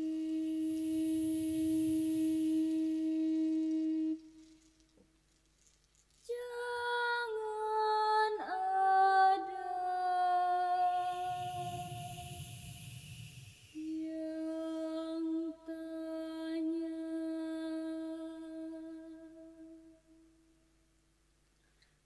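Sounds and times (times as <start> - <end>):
voices singing wordless melody: 0.0 - 4.4, 6.3 - 19.0
bamboo flute low note: 0.0 - 4.5, 8.7 - 15.4.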